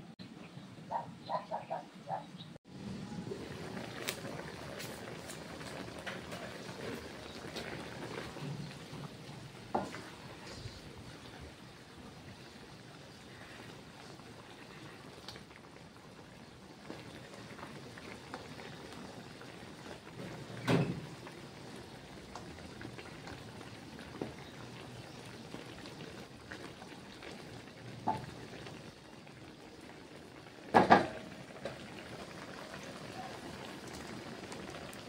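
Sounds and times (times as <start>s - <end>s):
liquid bubbling in wok: 2.7s - 35.0s.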